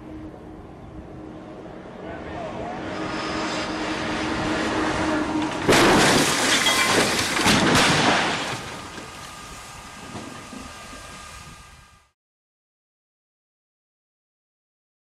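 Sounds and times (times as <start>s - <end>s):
truck engine: 0.0s - 12.2s
loud crash: 5.6s - 9.2s.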